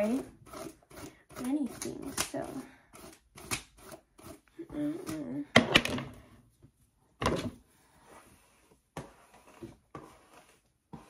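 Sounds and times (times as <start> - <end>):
objects sliding on wooden desk: 7.3 - 11.0.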